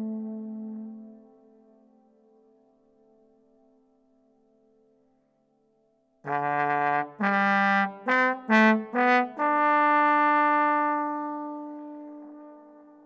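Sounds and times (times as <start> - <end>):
trombone playing: 6.3 - 13.0.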